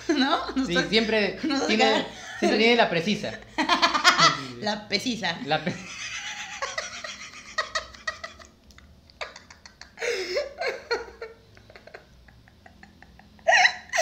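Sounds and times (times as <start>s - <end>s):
man and woman laughing: 0.1s - 4.6s, 5.5s - 14.0s.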